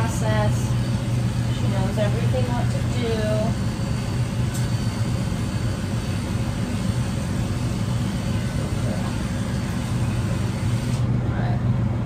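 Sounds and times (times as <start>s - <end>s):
electric clippers buzzing: 0.0s - 11.1s.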